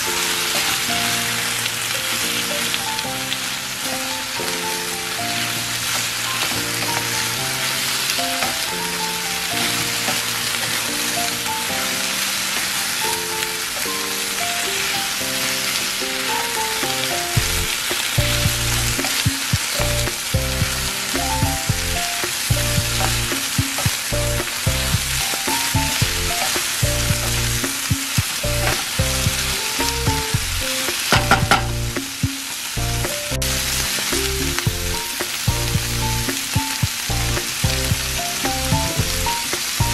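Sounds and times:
meat sizzling in a frying pan: 0:00.0 - 0:39.9
background music with bass: 0:17.4 - 0:19.1, 0:19.8 - 0:32.1, 0:32.8 - 0:39.9.

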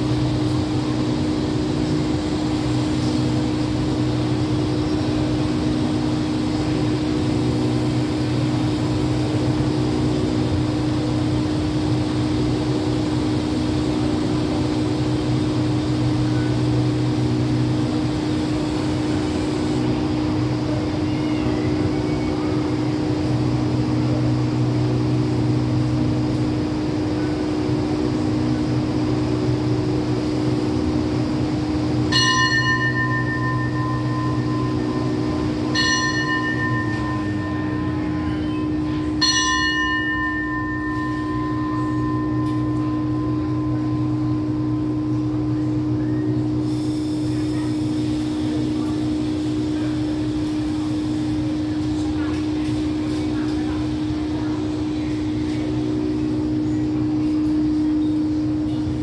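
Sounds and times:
train humming: 0:00.0 - 0:59.0
bell ringing: 0:32.1 - 0:44.4.

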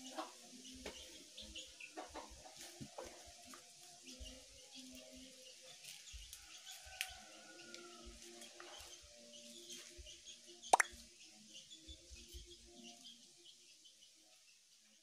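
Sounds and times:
leaves rustling and clicking: 0:05.8 - 0:09.0
faint bird chirps: 0:08.8 - 0:11.1.

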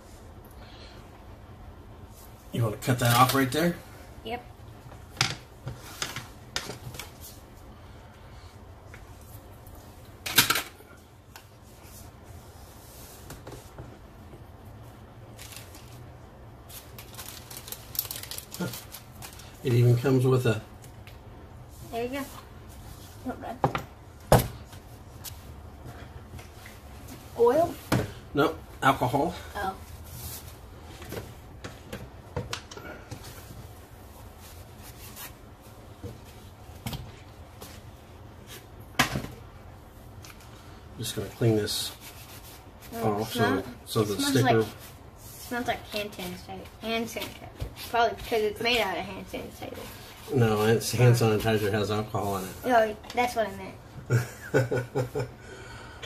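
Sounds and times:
low room hum: 0:00.0 - 0:56.0
paper rustling: 0:15.3 - 0:19.6.

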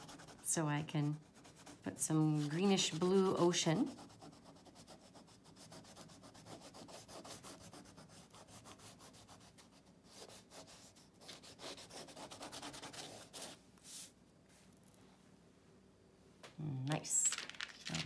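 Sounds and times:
crayon rubbing on paper: 0:00.0 - 0:14.1.

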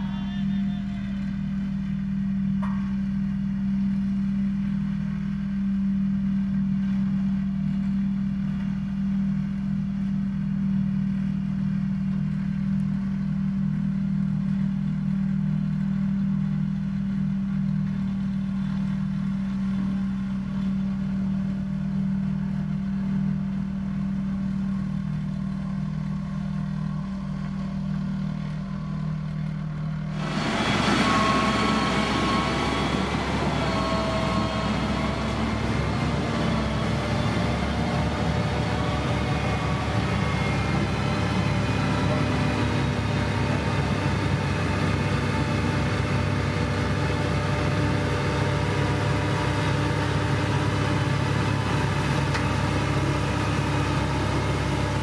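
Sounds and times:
motor grader engine: 0:00.0 - 0:55.0
road roller diesel engine: 0:00.0 - 0:55.0
high steady tones: 0:30.2 - 0:36.0.

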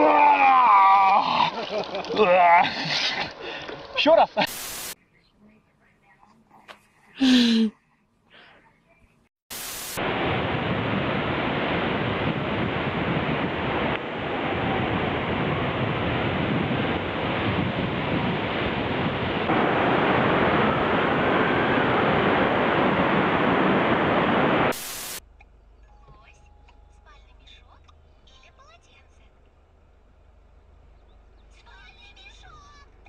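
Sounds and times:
static hiss bursts: 0:04.4 - 0:05.0, 0:09.5 - 0:10.2, 0:24.6 - 0:25.2
wind buffeting microphone: 0:10.0 - 0:24.7.

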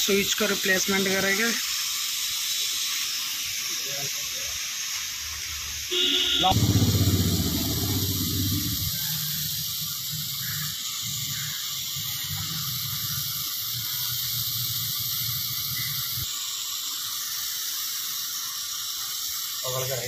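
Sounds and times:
torch flame hissing: 0:00.0 - 0:20.0
low fluttering rumble: 0:06.5 - 0:09.5.

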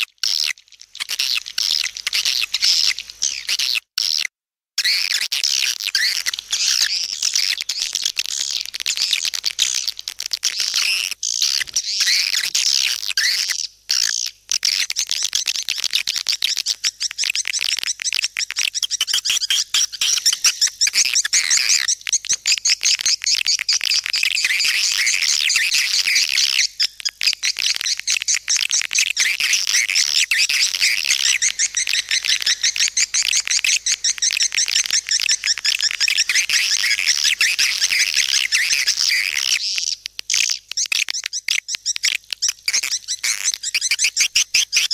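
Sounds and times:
swiftlets twittering: 0:27.9 - 0:39.6.

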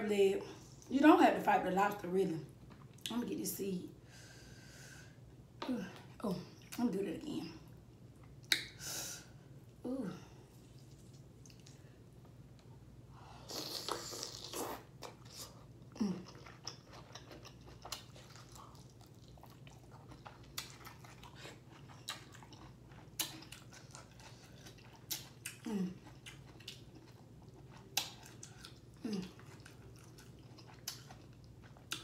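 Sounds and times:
wet chewing and mouth sounds: 0:10.5 - 0:11.9, 0:13.5 - 0:32.0.

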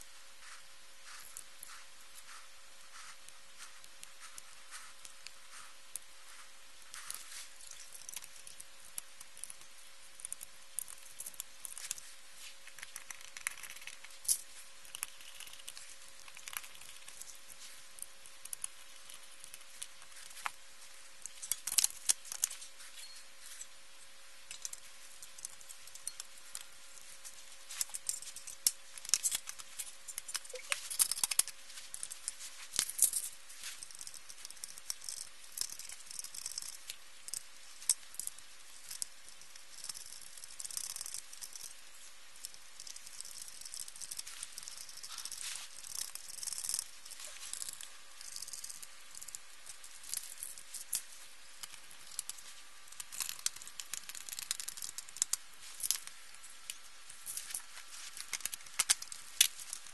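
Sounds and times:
faint steady hum: 0:00.0 - 0:59.9
clicks and rattles of parts handled: 0:24.5 - 0:41.8, 0:42.4 - 0:59.9.

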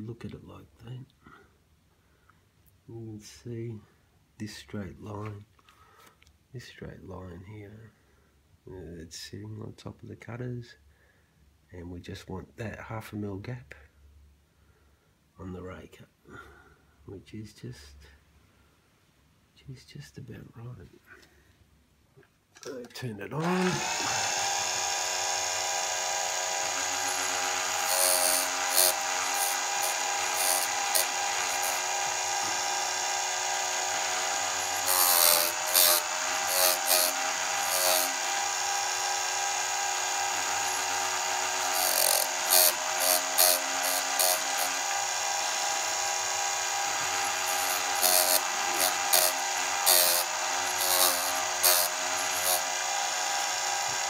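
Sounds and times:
harsh grinding bursts: 0:23.4 - 0:54.0
sharpener motor whine: 0:23.4 - 0:54.0.

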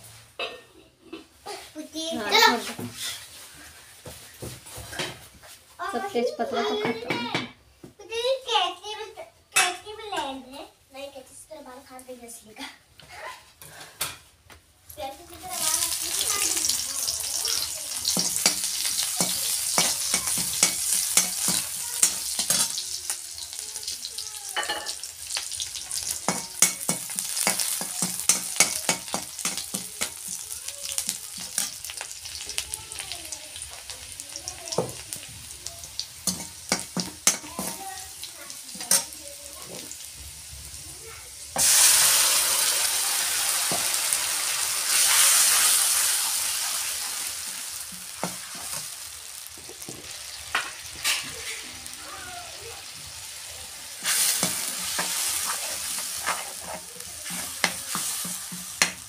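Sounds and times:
onions sizzling in hot oil: 0:02.0 - 0:06.8, 0:14.9 - 0:59.0
spoon stirring in pan: 0:15.5 - 0:35.1, 0:35.8 - 0:40.2, 0:47.9 - 0:52.0, 0:52.8 - 0:59.0
loud hiss of paste in oil: 0:41.6 - 0:47.4.

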